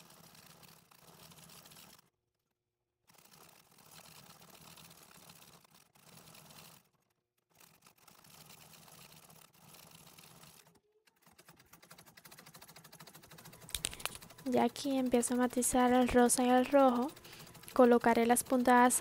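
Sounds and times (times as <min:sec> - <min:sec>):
sewing machine needle clicks: 0:07.6 - 0:19.0.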